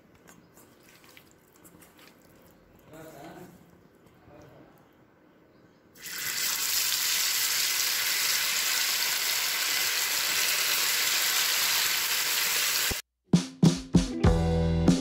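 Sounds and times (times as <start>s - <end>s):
fish sizzling in hot oil: 6.0s - 13.0s.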